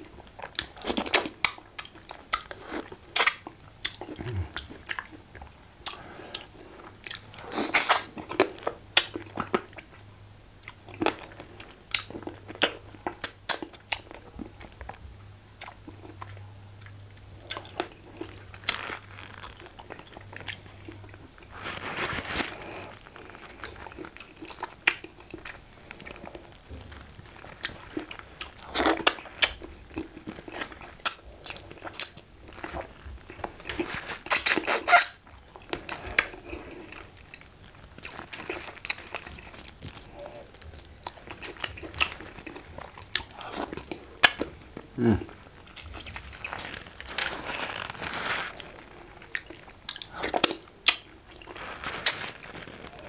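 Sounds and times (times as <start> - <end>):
person chewing fish: 0.0 - 15.0, 15.6 - 53.0.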